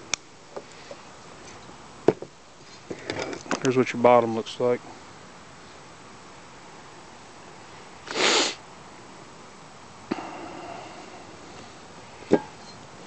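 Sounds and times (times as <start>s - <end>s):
person sniffing: 8.1s - 8.6s, 10.1s - 11.3s.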